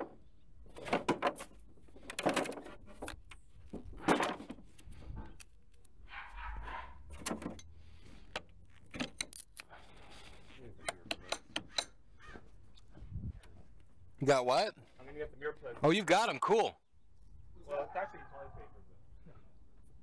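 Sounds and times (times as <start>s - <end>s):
objects knocking and rattling: 0.0s - 4.7s.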